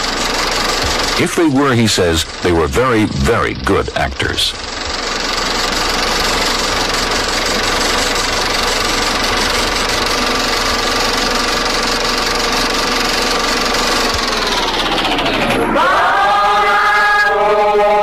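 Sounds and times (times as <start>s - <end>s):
loud drone of held tones: 13.9s - 18.0s.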